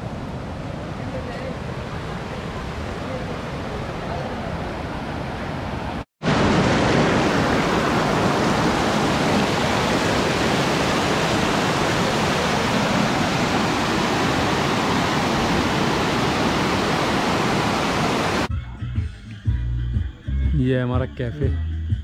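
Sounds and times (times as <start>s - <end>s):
water rushing over rocks: 6.2s - 18.5s.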